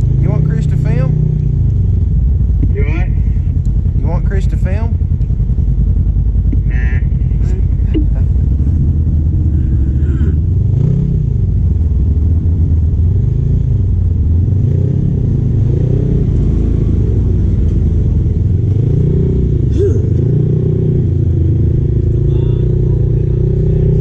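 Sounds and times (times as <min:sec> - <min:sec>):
engine revving under load: 0:06.4 - 0:24.0.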